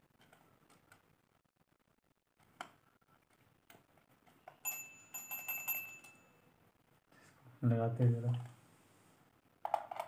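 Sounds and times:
metal bells ringing: 4.6 - 6.4.

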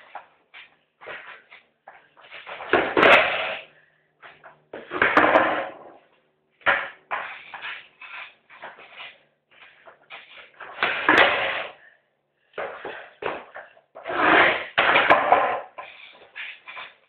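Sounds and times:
skateboard clattering on concrete: 1.0 - 3.7, 4.4 - 6.0, 6.6 - 9.0, 9.8 - 11.8, 12.6 - 17.0
skateboard wheels rolling: 12.6 - 17.0.

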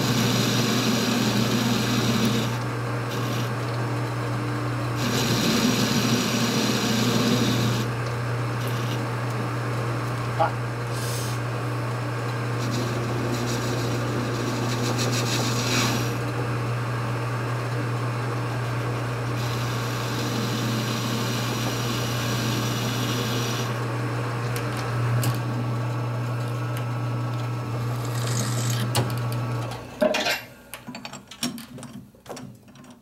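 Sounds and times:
lathe tool cutting metal: 0.0 - 3.6, 5.0 - 7.9, 12.6 - 16.2, 19.4 - 23.8
metal lathe running: 0.0 - 3.7, 4.8 - 9.2, 12.5 - 16.2, 18.6 - 23.8.

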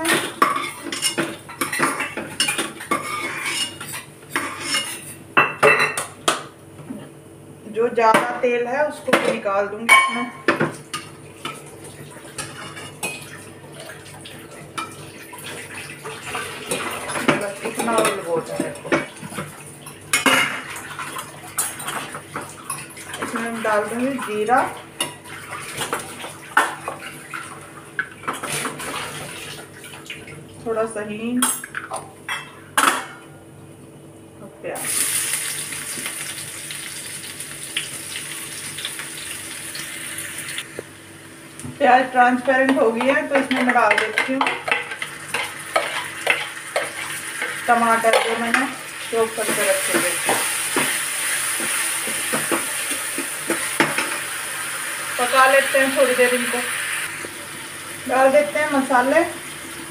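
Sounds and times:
onion sizzling in hot oil: 34.8 - 41.6, 44.9 - 59.9.

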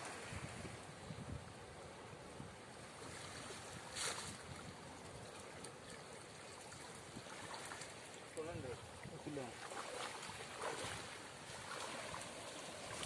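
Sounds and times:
water sloshing around wading person: 2.8 - 13.0.

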